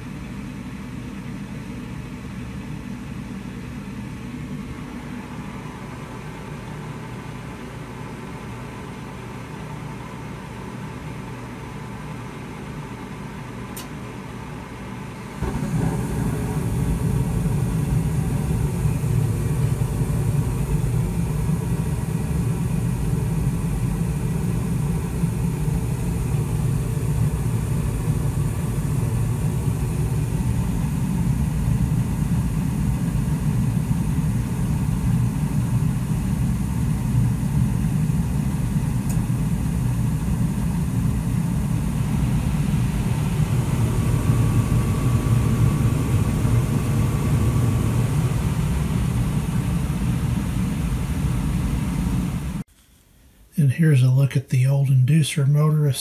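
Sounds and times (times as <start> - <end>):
gas furnace rumbling: 0.0 - 52.8
faint high whine: 14.8 - 56.0.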